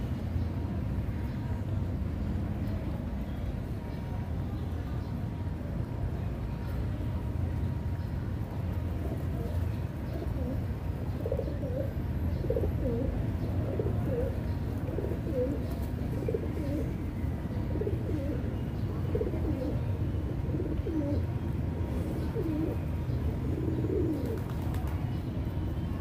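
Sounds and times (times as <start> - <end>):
pigeons cooing: 8.9 - 25.0.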